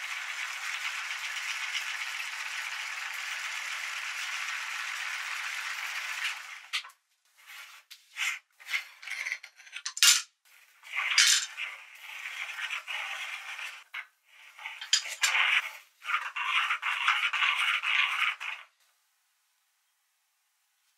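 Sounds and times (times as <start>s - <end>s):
grinder auger rattling and scraping: 10.9s - 14.0s, 14.6s - 18.7s
metal meat grinder clinking: 14.8s - 15.5s.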